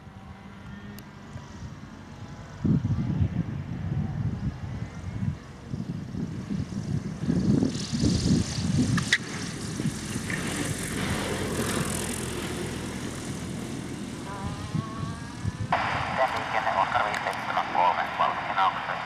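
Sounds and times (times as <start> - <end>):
glider engine at low power: 0.0 - 19.0
wind gusting on microphone: 1.5 - 19.0.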